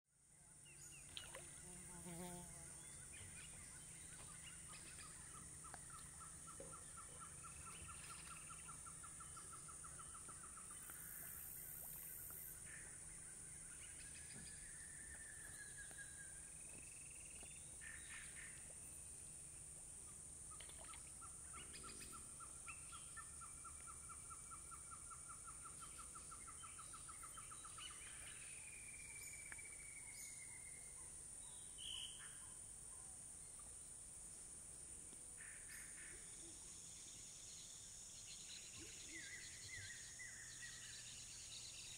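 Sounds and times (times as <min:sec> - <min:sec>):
insects droning: 0:00.4 - 0:32.4.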